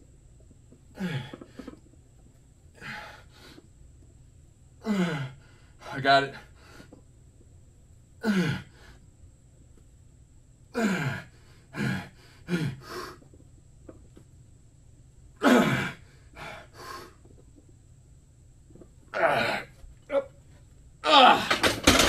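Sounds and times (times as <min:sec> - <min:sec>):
man grunting and breathing hard: 0:04.8 - 0:05.4, 0:10.8 - 0:13.0.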